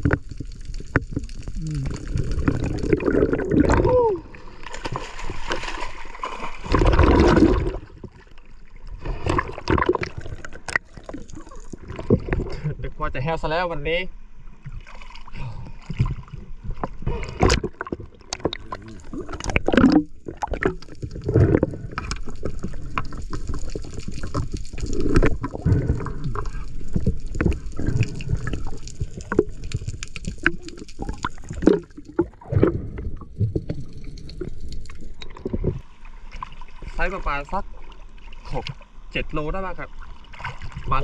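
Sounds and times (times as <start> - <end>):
water sloshing and gurgling: 0.0 - 13.4, 14.2 - 41.0
splashes and knocks: 4.6 - 8.4, 9.1 - 12.6, 15.9 - 36.9, 40.1 - 41.0.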